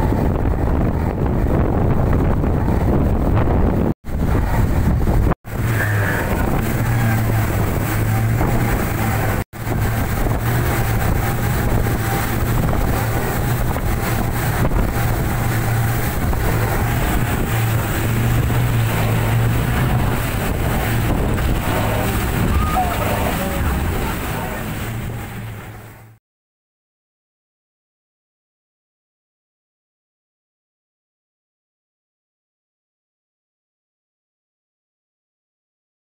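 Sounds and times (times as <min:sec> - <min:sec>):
outboard motors droning: 0:00.0 - 0:26.2
rush of wind and water: 0:00.0 - 0:26.2.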